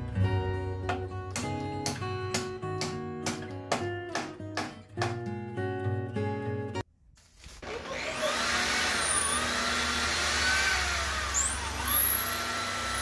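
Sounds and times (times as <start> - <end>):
electric drill whining: 7.6 - 13.0.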